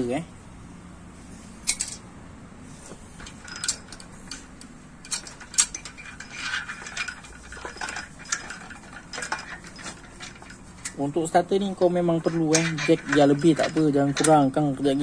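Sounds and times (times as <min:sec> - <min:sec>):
metal parts rattling and scraping: 0:01.5 - 0:02.1, 0:02.7 - 0:15.0
sharp metal clicks: 0:01.6 - 0:02.0, 0:03.2 - 0:11.0.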